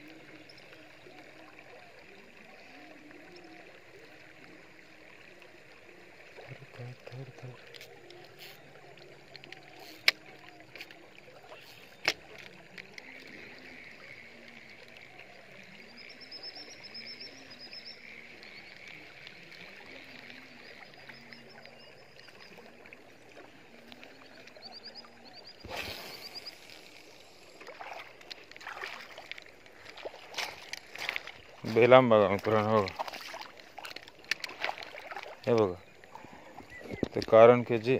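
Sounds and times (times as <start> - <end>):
water lapping around boat: 0.0 - 37.9
birds trilling: 35.3 - 37.9.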